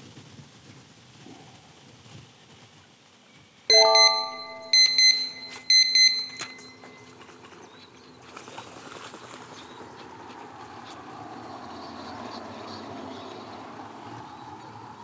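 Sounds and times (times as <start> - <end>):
electronic chime dings: 3.7 - 6.9.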